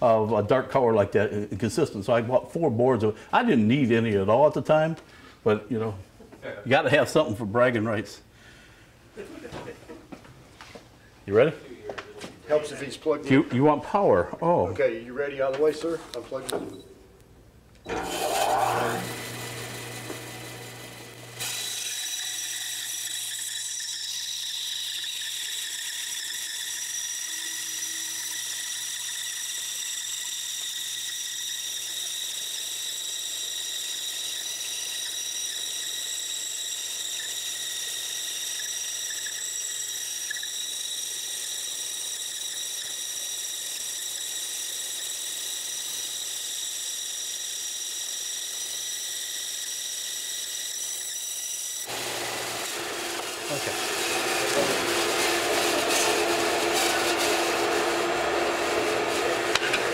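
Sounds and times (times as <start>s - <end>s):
bandsaw high-pitched whine: 17.9s - 59.9s.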